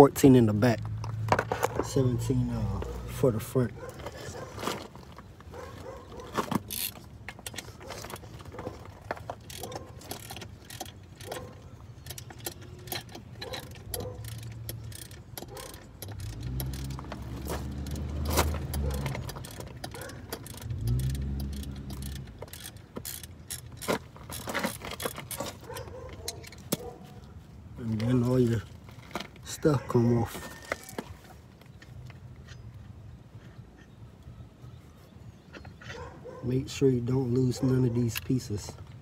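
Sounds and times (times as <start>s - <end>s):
metal tools clinking: 1.4s - 27.1s
ratchet wrench clicking: 6.7s - 7.6s, 9.4s - 25.4s.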